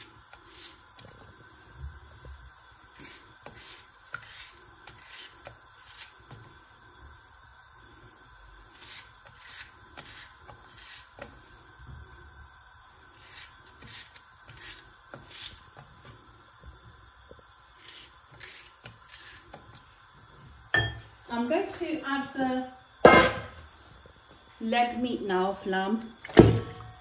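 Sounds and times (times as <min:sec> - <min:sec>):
knife cutting onion: 0:00.0 - 0:01.1, 0:02.9 - 0:06.5, 0:08.7 - 0:11.4, 0:13.2 - 0:16.2, 0:17.7 - 0:19.8.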